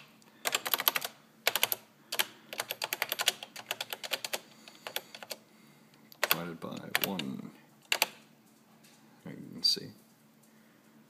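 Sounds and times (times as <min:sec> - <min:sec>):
calculator keys clicking: 0:00.5 - 0:05.4, 0:06.2 - 0:08.2.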